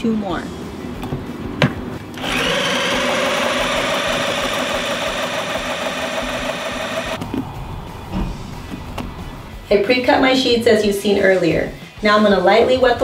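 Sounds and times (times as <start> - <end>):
electric drill mixing mortar: 2.1 - 7.2.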